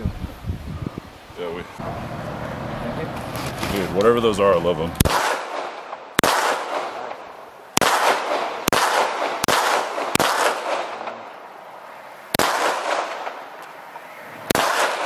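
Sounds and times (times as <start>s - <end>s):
gunshots with echo: 5.0s - 11.2s, 12.4s - 13.4s, 14.5s - 15.0s.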